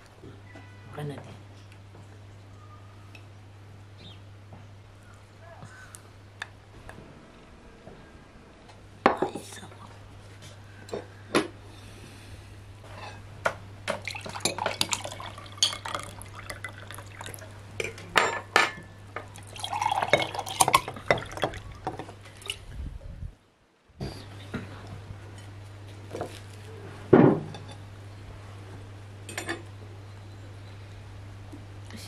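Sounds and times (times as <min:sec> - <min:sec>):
drink pouring into glasses: 0:13.9 - 0:18.0, 0:19.2 - 0:22.6
dishes and glass clattering: 0:13.9 - 0:18.9, 0:19.6 - 0:22.1.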